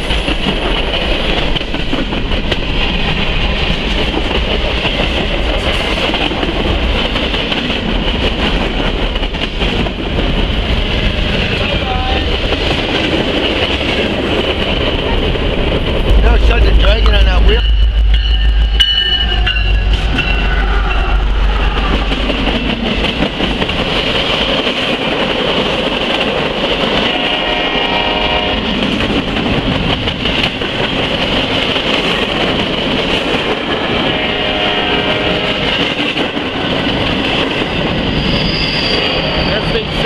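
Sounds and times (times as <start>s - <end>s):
diesel locomotive engine rumble: 0.0s - 40.0s
steel wheels rolling on rail: 0.0s - 40.0s
pitched ringing whine: 17.3s - 22.6s.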